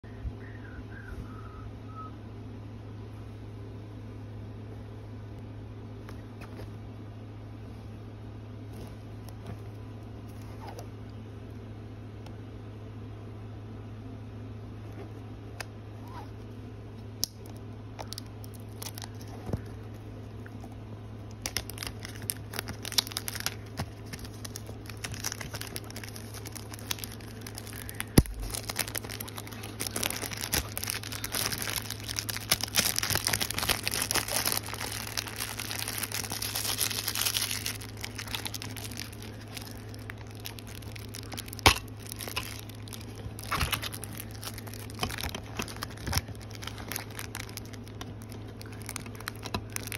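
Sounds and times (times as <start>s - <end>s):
steady low hum: 0.0s - 49.9s
plastic wrap crinkling: 17.2s - 49.9s.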